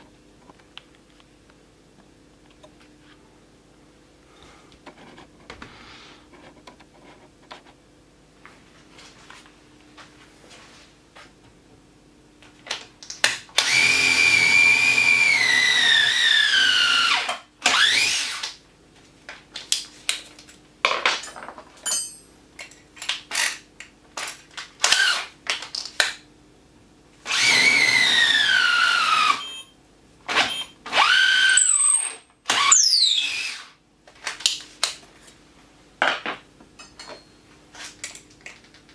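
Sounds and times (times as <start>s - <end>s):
cordless drill motor whine: 13.6s - 18.4s, 27.3s - 29.7s, 30.4s - 31.9s, 32.5s - 33.7s
drill trigger bursts: 13.6s - 18.4s, 27.3s - 29.6s.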